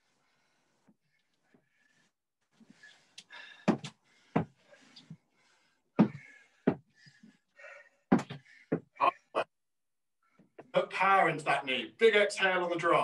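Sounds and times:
heavy breathing: 0:00.0 - 0:09.3
feet thudding on rubber floor: 0:03.6 - 0:04.6, 0:06.0 - 0:07.0, 0:08.1 - 0:08.9.

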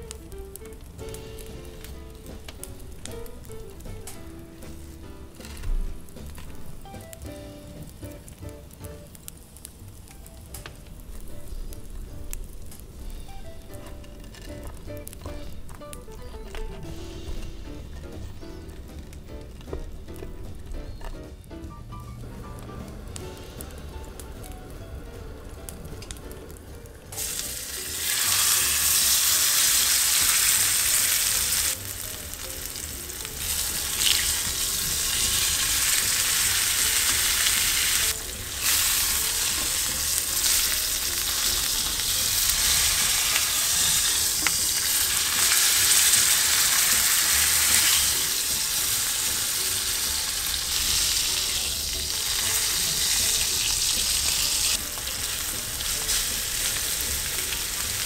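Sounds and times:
steak sizzling in oil: 0:00.0 - 0:10.6, 0:27.1 - 0:58.0.

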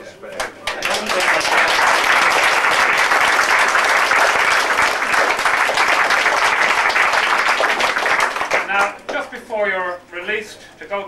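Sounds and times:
crowd applauding: 0:00.4 - 0:08.9.

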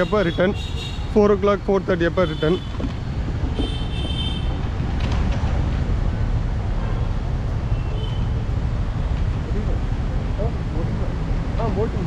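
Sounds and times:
engine and traffic rumble: 0:00.0 - 0:12.0.

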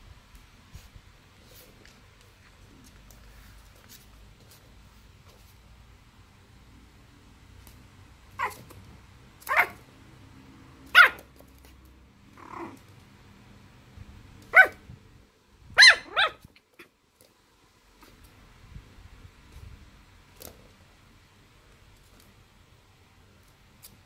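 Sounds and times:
dog barking in high yips: 0:08.4 - 0:08.7, 0:09.4 - 0:09.8, 0:10.9 - 0:11.3, 0:14.5 - 0:14.8, 0:15.8 - 0:16.5.

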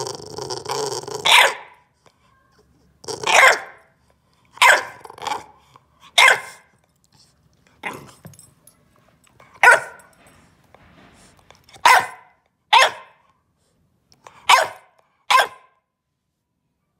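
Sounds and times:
puppy barking: 0:01.2 - 0:01.8, 0:03.2 - 0:03.8, 0:04.6 - 0:05.0, 0:06.2 - 0:06.7, 0:09.6 - 0:10.1, 0:11.8 - 0:13.2, 0:14.4 - 0:15.8.

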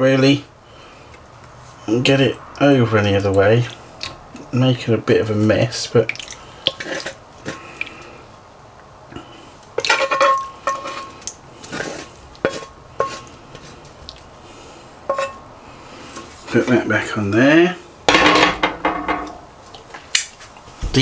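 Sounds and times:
metal spoon scraping griddle pan: 0:06.7 - 0:07.6, 0:09.8 - 0:13.9, 0:15.1 - 0:15.4.

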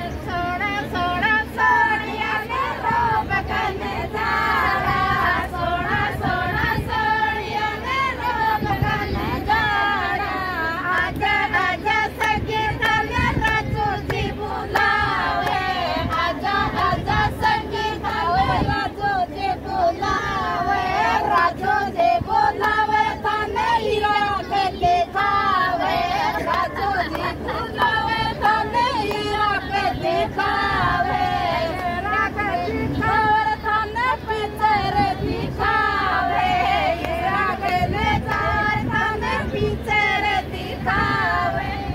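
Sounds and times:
women singing in unison: 0:00.0 - 0:41.9
hand-clapping: 0:26.4 - 0:29.3.

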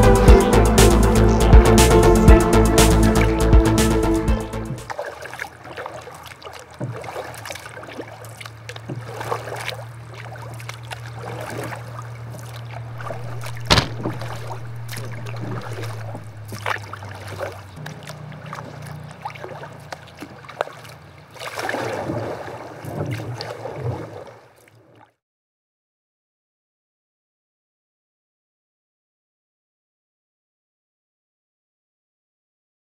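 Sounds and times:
paddles splashing in water: 0:04.7 - 0:25.2
steady low hum: 0:11.8 - 0:17.2
sharp knock: 0:13.6 - 0:14.2.

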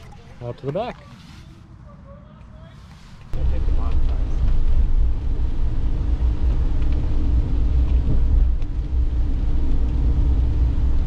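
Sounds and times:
van engine rumble: 0:03.0 - 0:11.0.

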